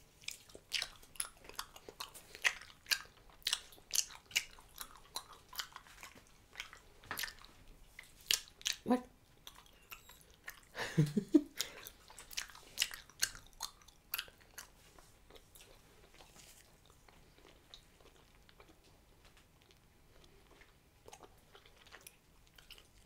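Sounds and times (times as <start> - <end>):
gum chewing wet smacks: 0.2 - 8.8, 11.5 - 18.9.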